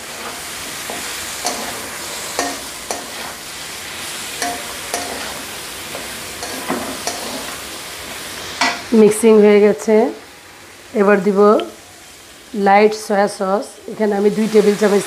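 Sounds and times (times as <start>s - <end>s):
food sizzling in a wok: 0.0s - 15.0s
spatula scraping and knocking pan: 0.2s - 3.4s, 4.3s - 7.6s.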